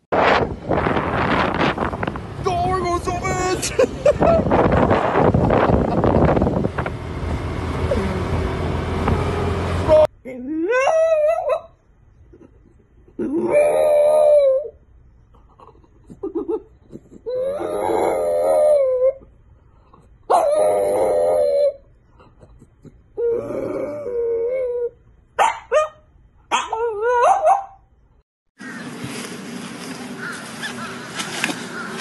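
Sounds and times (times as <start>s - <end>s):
rushing wind: 0.0s - 9.9s
street noise: 0.0s - 10.1s, 28.6s - 32.0s
dog howling: 13.4s - 14.8s, 17.3s - 19.2s, 20.3s - 21.8s.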